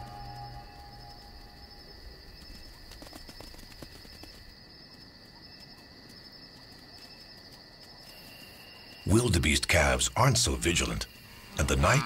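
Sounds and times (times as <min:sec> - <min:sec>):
night insects trilling: 0:00.0 - 0:12.0
faint ticks and rustles: 0:02.0 - 0:09.8.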